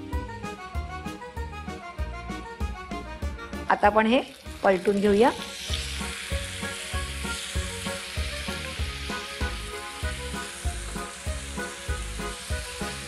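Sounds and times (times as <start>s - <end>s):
background music with steady beat: 0.0s - 4.5s, 5.4s - 13.0s
fish sizzling in a pan: 4.0s - 13.0s.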